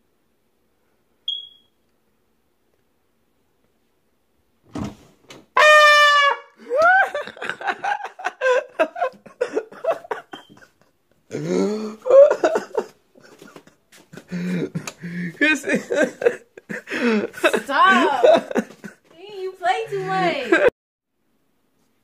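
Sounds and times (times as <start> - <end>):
loud trumpet blast: 5.6 - 6.6
person shrieking and shouting: 17.6 - 18.3, 19.6 - 20.7.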